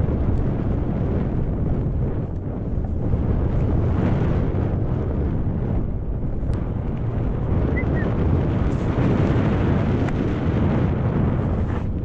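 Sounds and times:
wind rumbling on microphone: 0:00.0 - 0:12.0
high chirp: 0:07.8 - 0:08.1.

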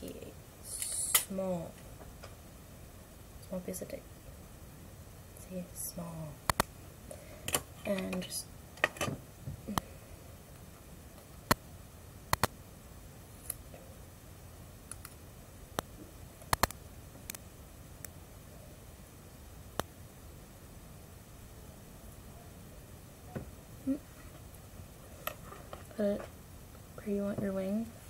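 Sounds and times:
faint room hiss: 0:00.0 - 0:28.0.

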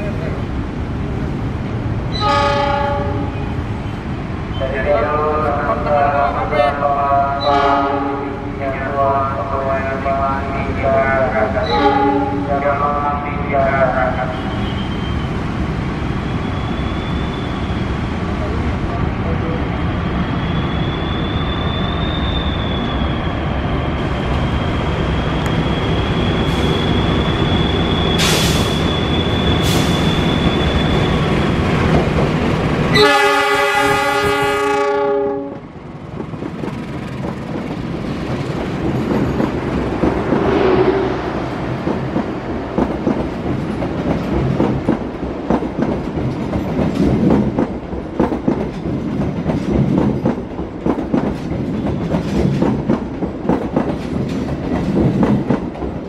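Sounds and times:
locomotive horn blast: 0:02.2 - 0:03.4, 0:07.4 - 0:08.3, 0:11.6 - 0:12.5, 0:32.9 - 0:35.6
high squeal: 0:14.3 - 0:15.4, 0:16.2 - 0:18.0, 0:19.7 - 0:31.4
train wheels clattering over joints: 0:41.8 - 0:56.0.

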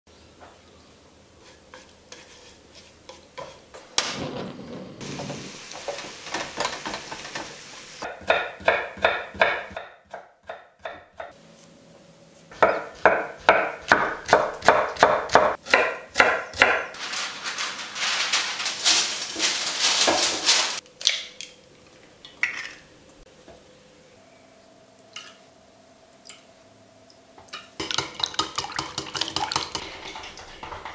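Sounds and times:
meat sizzling in a wok: 0:05.0 - 0:08.1.

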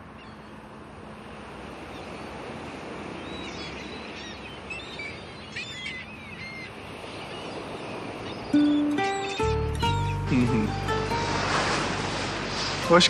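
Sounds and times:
sea surf on sandy beach: 0:00.0 - 0:13.0
small birds chirping: 0:03.1 - 0:11.2.

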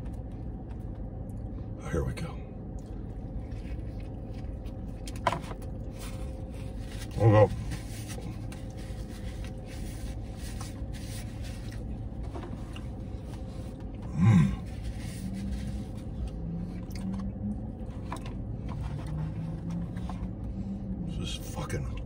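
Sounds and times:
man chewing food: 0:00.0 - 0:01.8, 0:02.6 - 0:21.0
low rumble: 0:00.0 - 0:22.0
food wrapper rustling: 0:03.0 - 0:13.9
man murmuring mm: 0:14.0 - 0:14.7
man grunting: 0:14.1 - 0:14.6.

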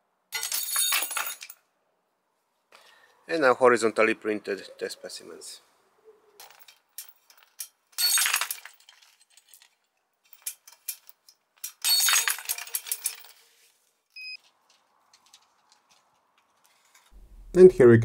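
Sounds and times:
steel chain jangling: 0:06.4 - 0:13.5.

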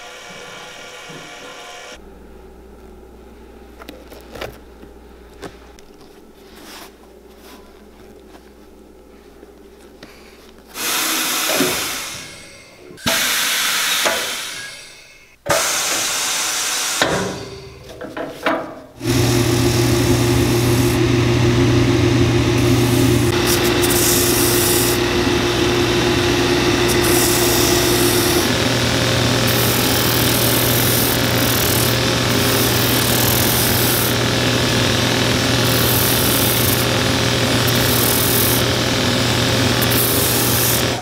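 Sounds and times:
sanding machine humming: 0:19.0 - 0:41.0.

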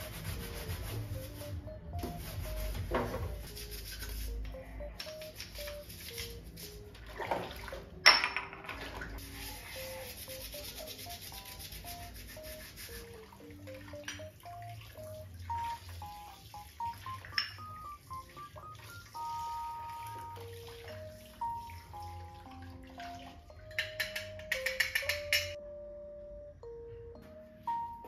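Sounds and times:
soft background music: 0:00.0 - 0:28.0.

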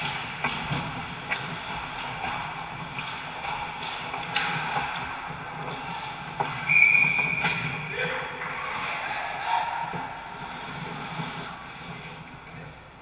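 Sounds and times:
skate blades scraping ice: 0:00.0 - 0:12.7
sticks and puck clacking: 0:00.0 - 0:13.0
referee whistle: 0:06.7 - 0:07.6.

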